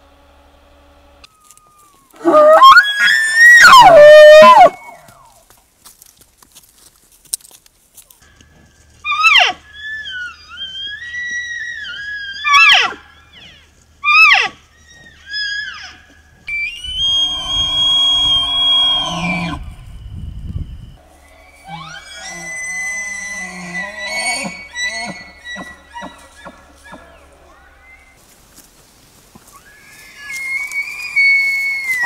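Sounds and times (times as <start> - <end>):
elk bugling: 1.2 - 5.3, 8.3 - 19.8, 21.0 - 28.2, 29.4 - 32.0.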